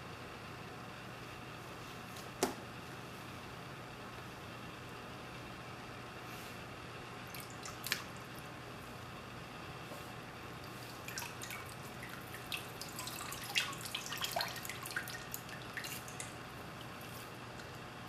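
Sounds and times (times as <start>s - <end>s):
low steady hum: 0.0s - 18.0s
liquid dripping into plastic tub: 7.3s - 8.4s, 10.6s - 17.8s.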